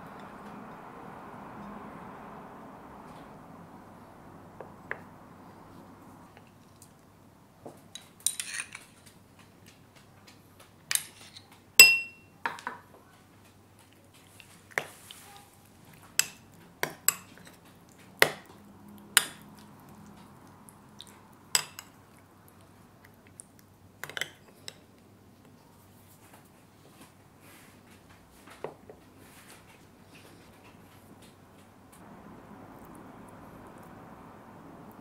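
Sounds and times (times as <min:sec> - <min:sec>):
teaspoon clinking against bowls: 0:11.8 - 0:12.3.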